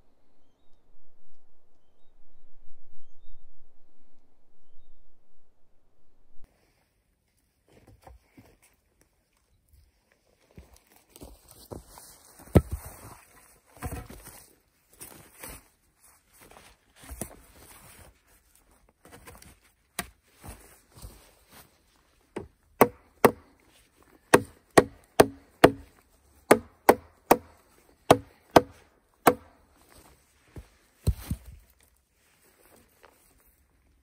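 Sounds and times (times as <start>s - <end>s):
tool striking wood: 22.4s - 23.5s, 24.3s - 25.9s, 26.5s - 29.6s.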